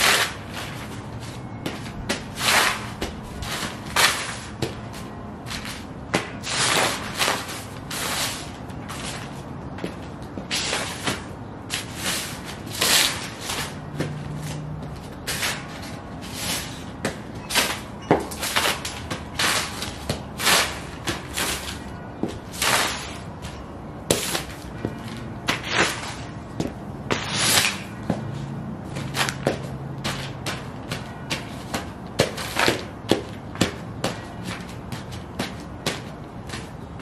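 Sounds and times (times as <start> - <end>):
boots stomping on paper: 28.0 - 37.0.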